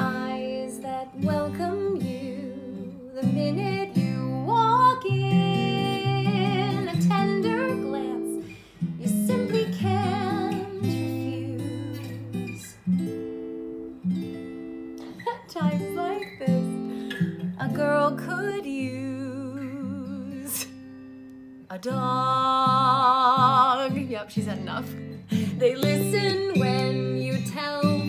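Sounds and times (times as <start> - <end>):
woman singing with vibrato: 0.0 - 12.9, 15.2 - 20.8, 21.7 - 28.0
acoustic guitar accompaniment: 0.0 - 28.0.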